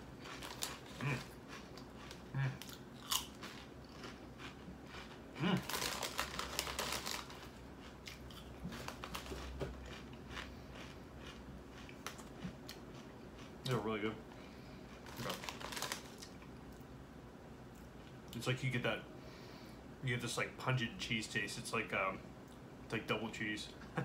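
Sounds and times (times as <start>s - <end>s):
crunching tortilla chips: 0.0s - 13.9s, 14.9s - 16.5s.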